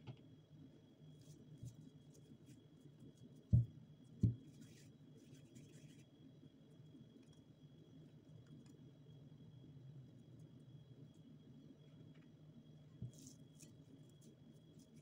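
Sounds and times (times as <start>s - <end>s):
dull thumps: 3.5s - 4.5s.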